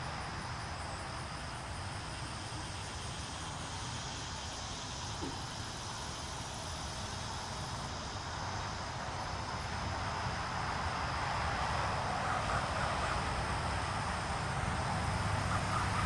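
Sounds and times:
insects calling: 0.0 - 16.0
broad rushing noise: 5.2 - 16.0.

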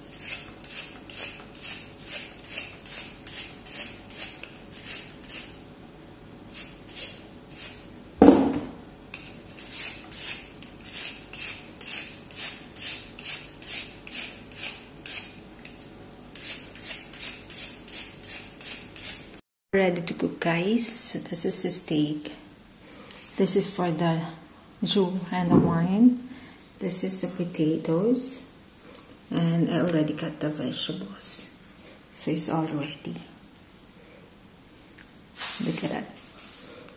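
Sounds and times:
peeler scraping carrot: 0.0 - 5.6, 6.5 - 7.8, 9.1 - 19.3
loud thud: 8.2 - 8.8.

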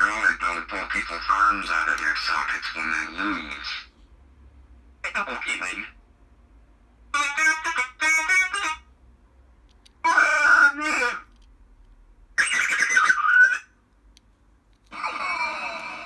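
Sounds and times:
creature growls played back: 14.9 - 16.0.

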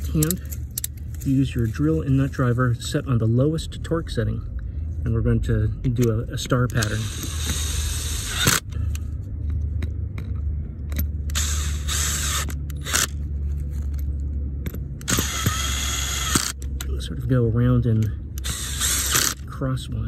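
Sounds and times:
drill clutch ratcheting: 0.0 - 1.3, 6.0 - 16.9, 18.0 - 19.6
cordless drill driving bolts: 6.7 - 8.7, 11.3 - 13.2, 15.0 - 16.6, 18.4 - 19.4.

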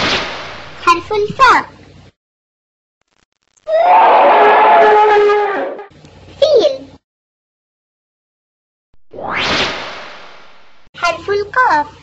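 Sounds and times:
elephant trumpeting: 3.7 - 5.9.

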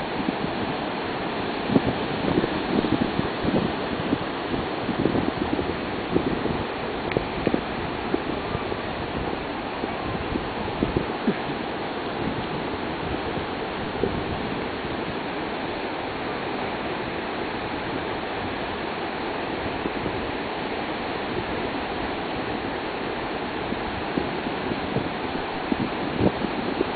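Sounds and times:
ocean surf breaking: 0.0 - 26.9
wind bump on microphone: 1.5 - 15.2, 23.6 - 26.9.

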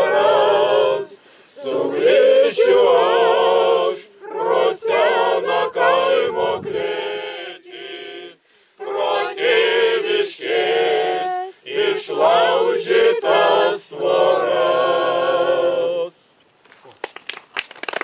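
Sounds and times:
mixed choir singing: 0.0 - 16.3.

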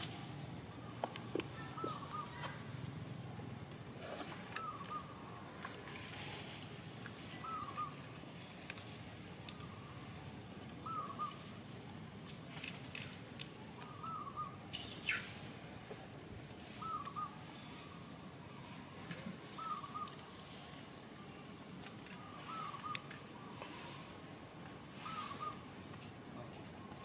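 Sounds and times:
faint background ambience: 0.0 - 27.0
bird calling: 0.8 - 2.6, 4.1 - 6.0, 7.3 - 8.5, 10.8 - 11.5, 13.7 - 15.5, 16.7 - 18.2, 18.8 - 20.4, 22.1 - 24.1, 25.0 - 25.7.

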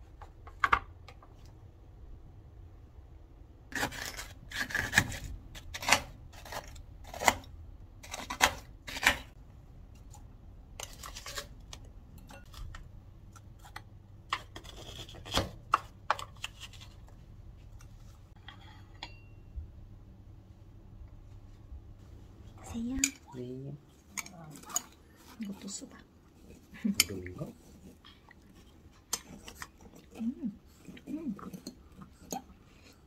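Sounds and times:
scraping frozen sorbet: 3.7 - 18.8.

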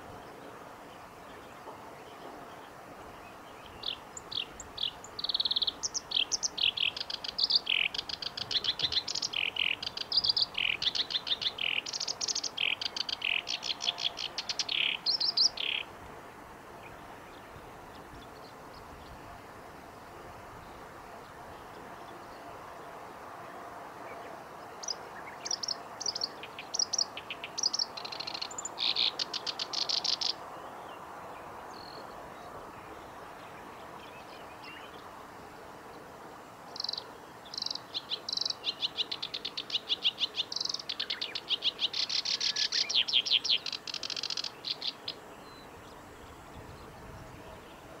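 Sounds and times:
bird singing trills: 1.3 - 15.9, 24.8 - 30.7, 36.8 - 47.9.

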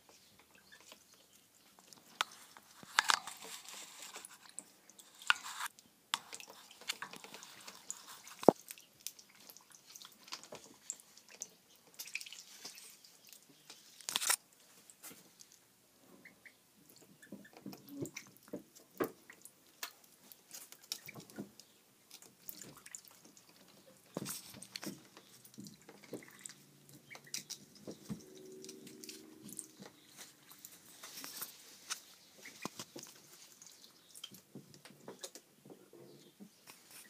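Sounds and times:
water dripping and splashing: 0.0 - 15.6, 16.8 - 35.5
ducklings' bills clicking and tapping: 17.0 - 28.8, 29.7 - 35.5.

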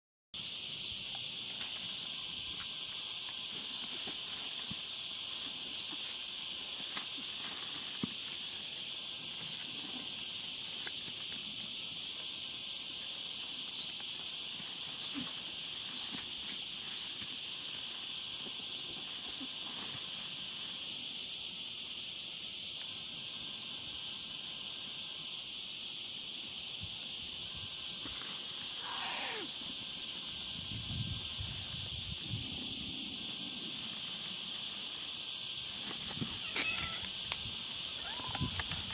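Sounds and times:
insects droning: 0.4 - 38.9
dry leaves rustling: 3.4 - 11.5, 13.9 - 20.9, 33.7 - 38.9.

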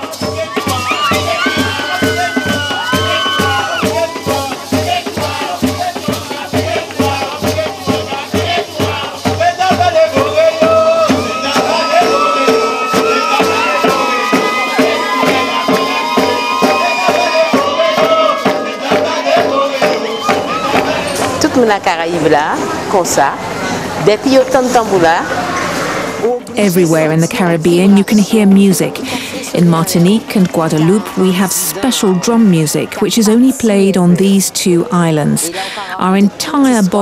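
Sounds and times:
hand drums beating: 0.0 - 22.2
voices singing: 0.0 - 24.4, 26.6 - 37.0.

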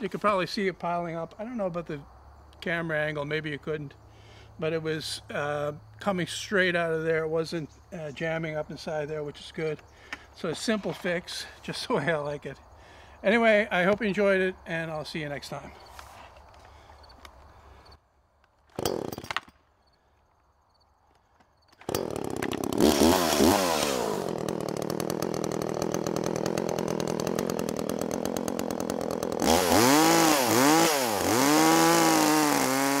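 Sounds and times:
chainsaw engine revving: 18.8 - 19.4, 21.8 - 33.0.

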